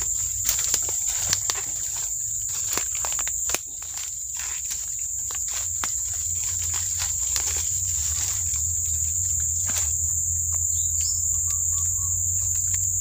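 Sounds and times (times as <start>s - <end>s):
twigs snapping: 0.0s - 10.2s
footsteps crunching through dry leaves: 0.0s - 13.0s
high-pitched insect drone: 0.0s - 13.0s.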